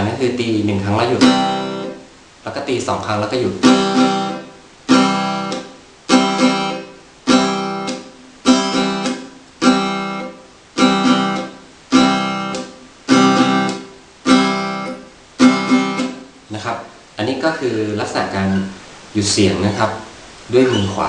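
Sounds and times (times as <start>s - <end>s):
acoustic guitar muted strums: 3.6s - 16.3s.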